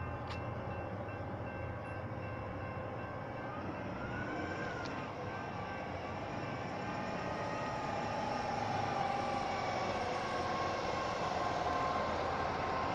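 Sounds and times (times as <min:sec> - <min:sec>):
railroad crossing bells ringing: 0:00.0 - 0:08.1.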